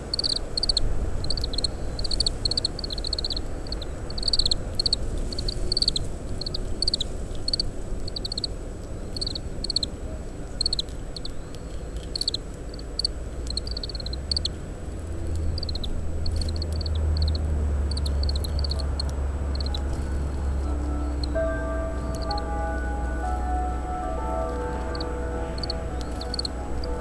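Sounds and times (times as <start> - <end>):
wind rumble on microphone: 0.0 - 11.2
bird high call notes: 18.0 - 27.0.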